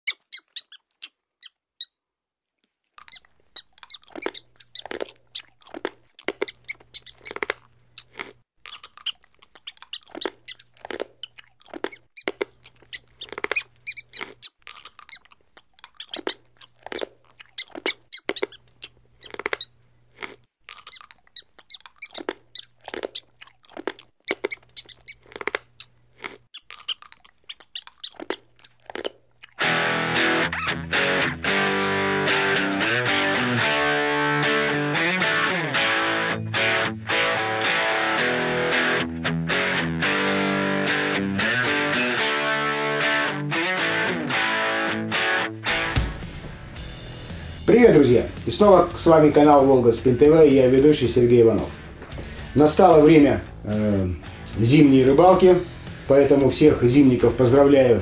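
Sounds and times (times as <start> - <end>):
rats gnawing: 0.0 - 1.9, 2.8 - 29.7
rats squeaking: 0.0 - 2.0, 3.0 - 19.8, 20.7 - 29.6.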